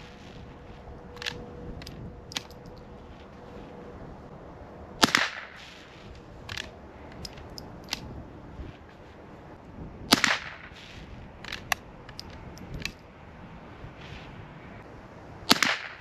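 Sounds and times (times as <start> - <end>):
rifle shot: 5.0 - 6.6, 10.1 - 11.1, 15.5 - 16.0
rifle lever clicks: 6.5 - 8.1.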